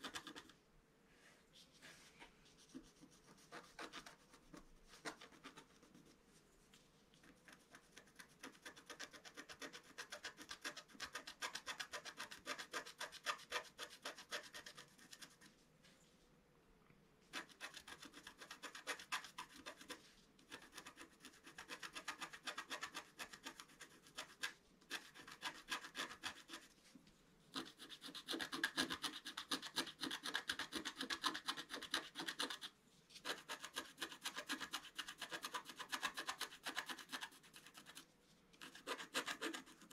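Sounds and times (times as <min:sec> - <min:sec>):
stylus scratching card: 0:00.0 - 0:00.5, 0:02.6 - 0:06.1, 0:07.2 - 0:15.5, 0:17.4 - 0:26.7, 0:27.6 - 0:38.0, 0:38.6 - 0:39.9.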